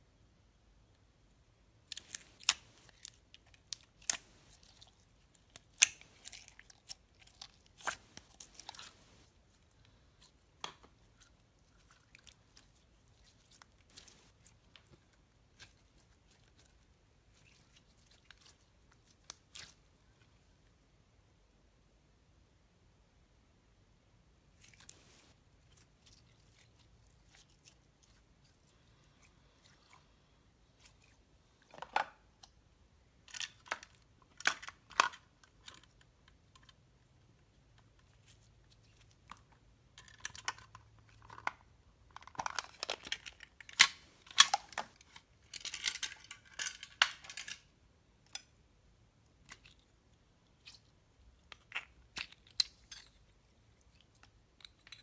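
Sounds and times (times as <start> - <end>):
crackly plastic rustling: 1.9 - 19.9, 38.0 - 47.7.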